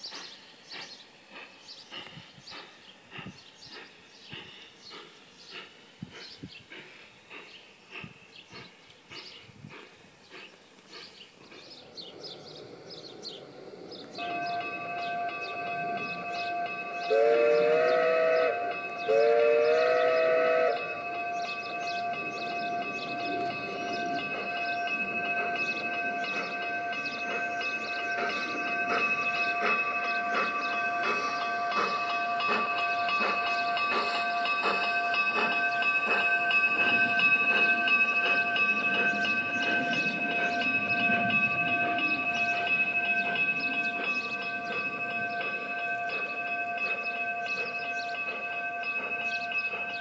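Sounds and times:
high whine: 0:13.9 - 0:50.0
steady high tone: 0:14.2 - 0:50.0
two-note steam whistle blasts: 0:14.2 - 0:50.0.

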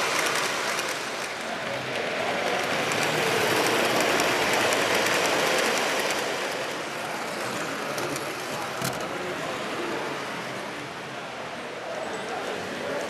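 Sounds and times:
model train wheels rumbling on rails: 0:00.0 - 0:10.8.

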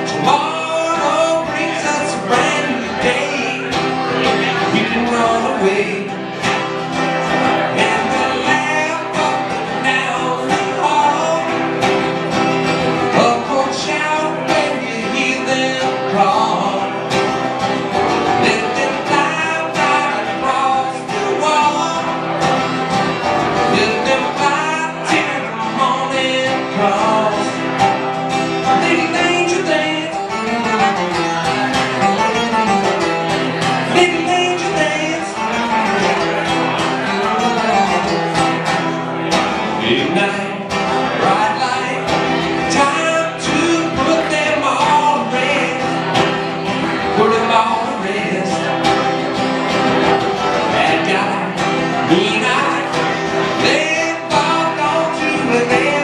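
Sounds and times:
acoustic guitar: 0:00.0 - 0:56.0
man singing: 0:00.0 - 0:56.0.

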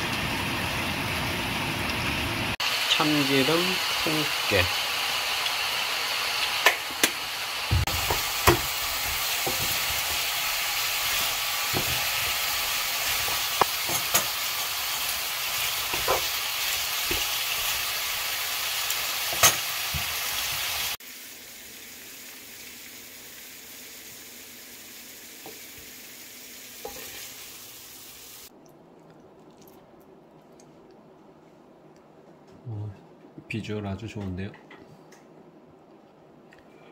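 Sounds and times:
chicken sizzling in frying pan: 0:00.0 - 0:28.5
wooden spatula knocking pan: 0:07.7 - 0:10.2, 0:11.7 - 0:12.4.

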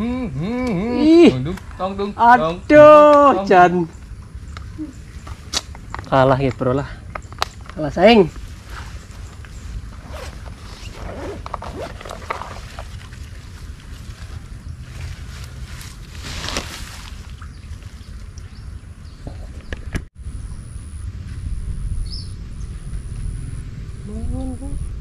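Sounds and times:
handling clicks and rustles: 0:04.6 - 0:17.3
river water sloshing and gurgling: 0:08.4 - 0:19.0.

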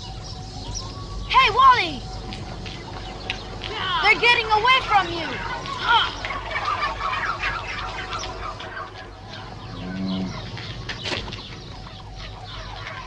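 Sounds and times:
turkeys calling: 0:00.0 - 0:13.0.

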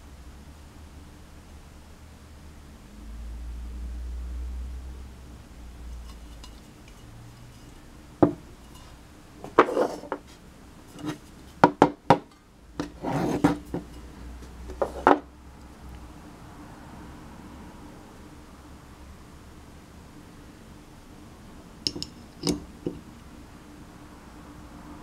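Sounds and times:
metal scraping: 0:05.9 - 0:11.6, 0:12.8 - 0:15.2.

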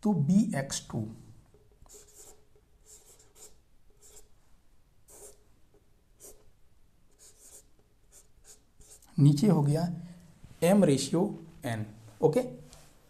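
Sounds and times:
chalk scratching on chalkboard: 0:01.5 - 0:04.3, 0:05.1 - 0:05.5, 0:06.2 - 0:06.5, 0:07.1 - 0:09.1.

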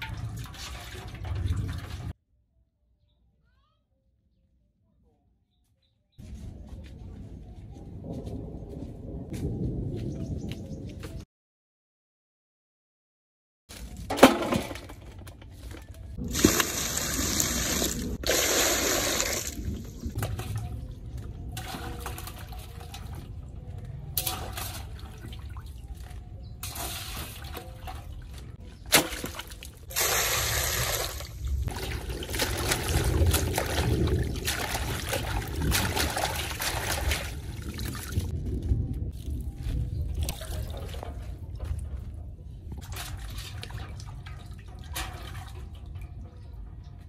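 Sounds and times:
water sloshing in metal basin: 0:00.0 - 0:02.2, 0:14.1 - 0:38.3, 0:39.2 - 0:47.0.

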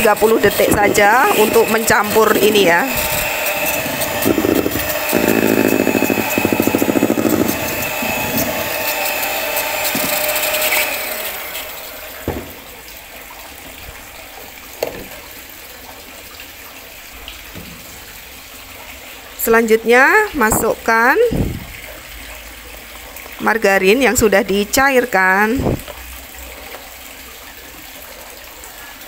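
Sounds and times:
beaters churning batter in metal bowl: 0:00.0 - 0:12.4
electric hand mixer whirring: 0:00.0 - 0:12.5, 0:25.6 - 0:25.9
spatula scraping and knocking bowl: 0:00.7 - 0:10.8.

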